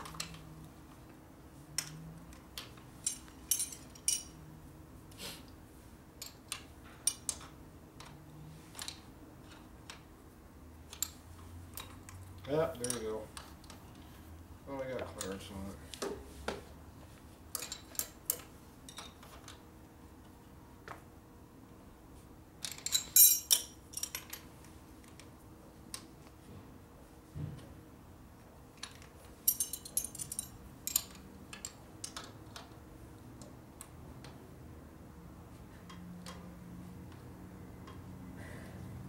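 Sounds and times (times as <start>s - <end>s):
wrenches clinking on metal: 1.8s - 4.4s, 6.2s - 10.0s, 10.9s - 13.4s, 17.5s - 19.6s, 22.6s - 24.5s, 28.8s - 32.8s.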